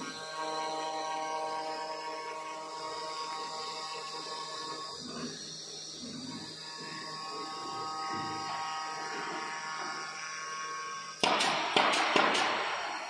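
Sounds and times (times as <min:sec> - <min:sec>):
router knife head buzzing: 0:00.0 - 0:13.0
sharp knocks: 0:11.2 - 0:12.9.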